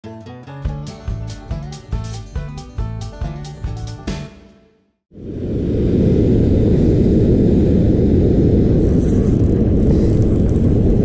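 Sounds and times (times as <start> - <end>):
wind buffeting microphone: 5.1 - 11.0.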